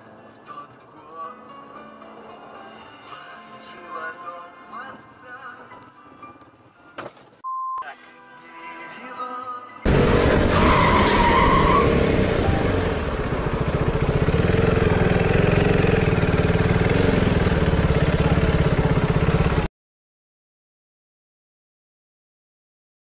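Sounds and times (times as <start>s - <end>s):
motorcycle engine running: 9.9s - 19.7s
short squeal: 10.2s - 12.0s, 12.8s - 13.4s.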